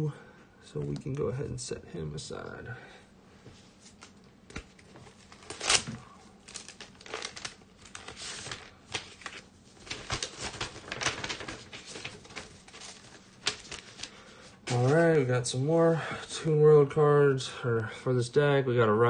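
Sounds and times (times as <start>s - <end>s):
plastic sleeves crinkling: 3.8s - 15.2s.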